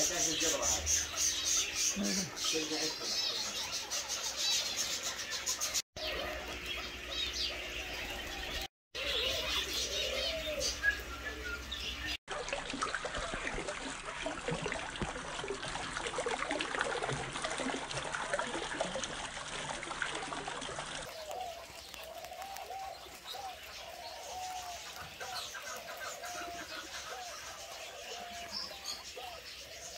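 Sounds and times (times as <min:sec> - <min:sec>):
caged birds chirping: 0:00.0 - 0:12.2, 0:20.1 - 0:29.9
small fountain splashing: 0:11.8 - 0:29.9.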